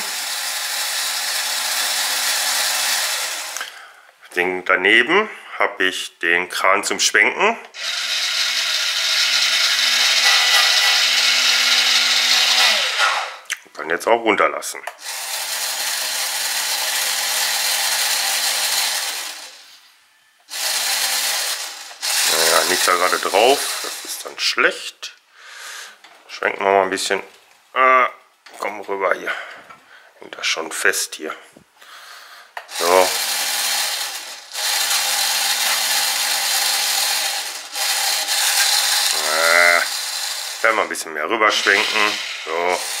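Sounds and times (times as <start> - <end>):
electric crane drive whirring: 0.0 - 3.7, 7.8 - 13.4, 15.0 - 19.8, 20.5 - 24.1, 32.7 - 40.7, 41.5 - 43.0
small electric winch motor: 0.0 - 3.7, 7.8 - 13.4, 15.0 - 19.8, 20.5 - 24.2, 32.7 - 40.9, 41.5 - 43.0.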